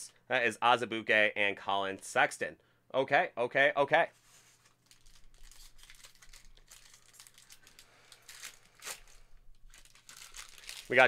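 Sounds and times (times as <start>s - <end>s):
foil pack crinkling: 4.5s - 11.0s
foil tearing: 4.8s - 11.0s.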